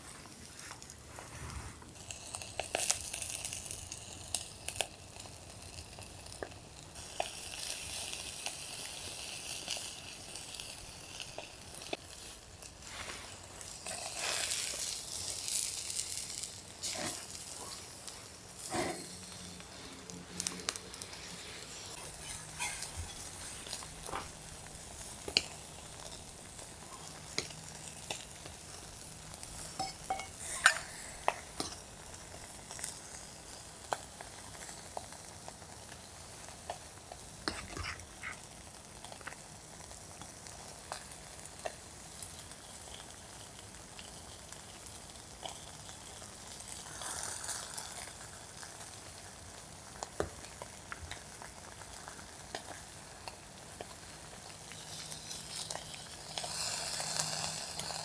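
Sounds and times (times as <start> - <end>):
pot simmering and sizzling: 0.0 - 58.0
metal utensils clinking on pot: 22.0 - 24.3, 29.7 - 30.9.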